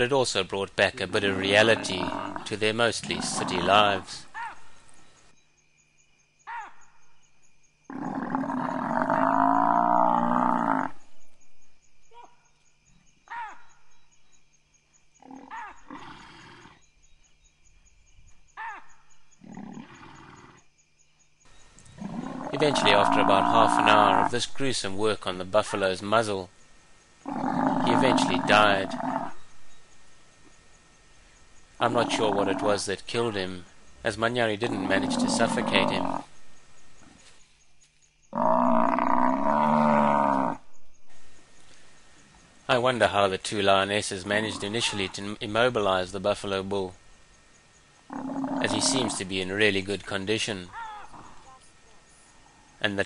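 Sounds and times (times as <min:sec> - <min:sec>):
hoarse animal sound: 0:01.2 - 0:04.6, 0:21.8 - 0:24.5, 0:31.8 - 0:33.6, 0:34.5 - 0:36.3, 0:48.1 - 0:49.6, 0:50.6 - 0:51.8
buffalo bellowing: 0:22.0 - 0:24.4, 0:27.2 - 0:29.5, 0:31.8 - 0:33.4, 0:34.5 - 0:36.3, 0:48.1 - 0:49.4, 0:50.7 - 0:51.6.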